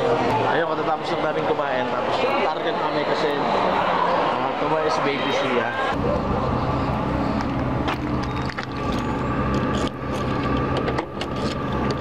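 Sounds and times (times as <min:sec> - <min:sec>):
low engine hum: 0:06.0 - 0:12.0.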